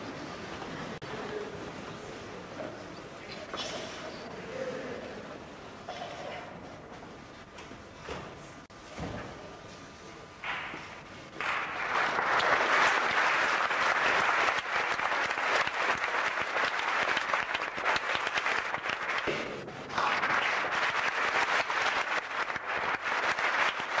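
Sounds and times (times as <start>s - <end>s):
audience applauding: 11.3s - 24.0s.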